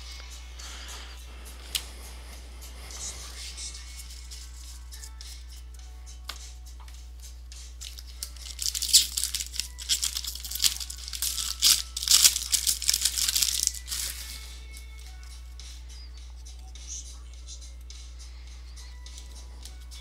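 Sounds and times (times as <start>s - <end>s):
plastic wrapper tearing and crinkling: 7.8s - 14.4s.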